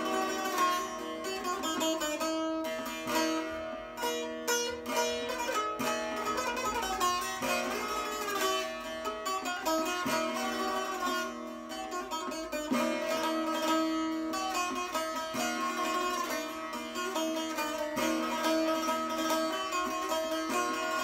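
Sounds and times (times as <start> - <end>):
plucked long-necked lute: 0.0 - 21.0.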